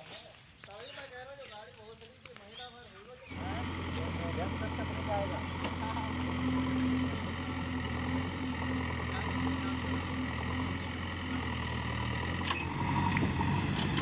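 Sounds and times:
diesel engine running: 0:03.3 - 0:14.0.

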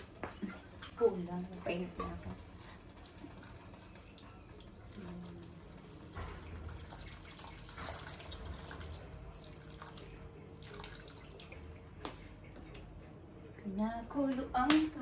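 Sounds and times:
water pouring into pot: 0:02.8 - 0:11.8.

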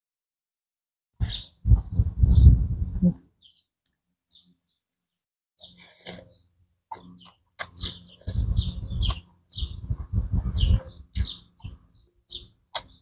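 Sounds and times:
slurping: 0:05.8 - 0:08.5.

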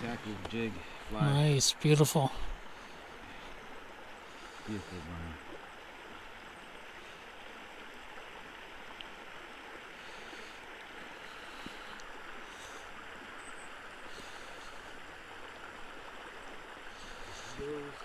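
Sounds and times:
creek water rushing: 0:00.0 - 0:18.0.

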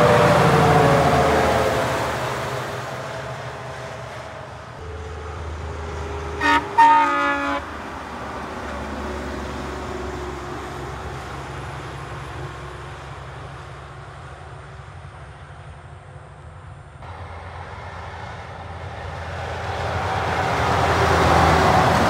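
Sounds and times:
truck engine and tyres passing: 0:00.0 - 0:22.0
truck air horn: 0:06.0 - 0:07.8.

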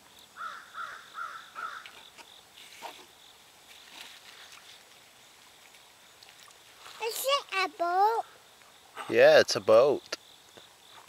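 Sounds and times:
insects droning: 0:00.0 - 0:11.0
bird calling: 0:00.4 - 0:03.2.

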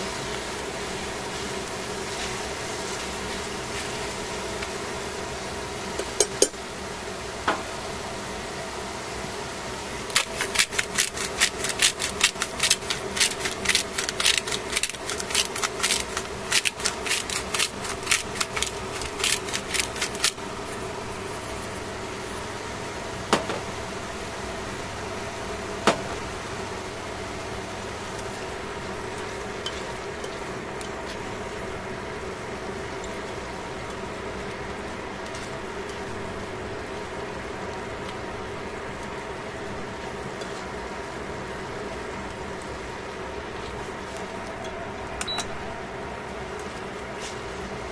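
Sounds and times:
steady hum: 0:00.0 - 0:47.9
salt grains clicking on a pan: 0:10.1 - 0:20.4.

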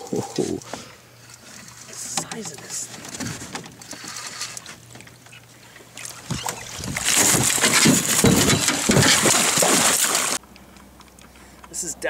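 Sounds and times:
fish thrashing and splashing: 0:03.4 - 0:10.4.

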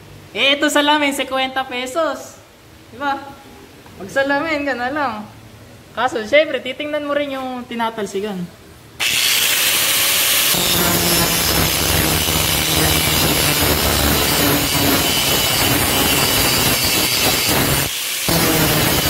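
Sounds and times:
angle grinder grinding metal: 0:09.0 - 0:19.0.

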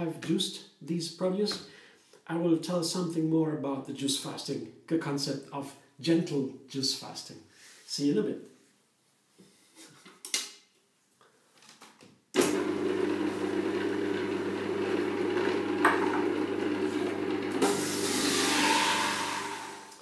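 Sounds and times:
carrots grinding in juicer: 0:12.4 - 0:20.0
electric juicer motor humming: 0:12.4 - 0:20.0.

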